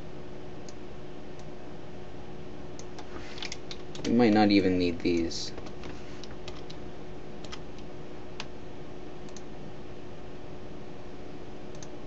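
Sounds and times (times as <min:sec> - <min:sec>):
faint hum: 0:00.0 - 0:12.0
computer mouse clicks: 0:07.4 - 0:08.5, 0:09.3 - 0:09.5, 0:11.7 - 0:12.0.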